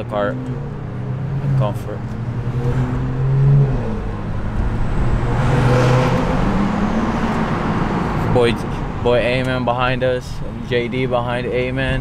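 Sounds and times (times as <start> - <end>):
car engine accelerating: 0.0 - 9.1
road and exhaust noise: 0.0 - 12.0.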